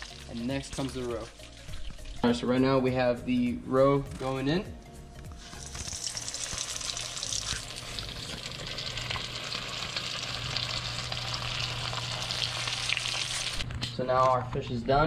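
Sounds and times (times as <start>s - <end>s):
fish roe frying in hot oil: 0.0s - 2.2s, 5.4s - 13.6s.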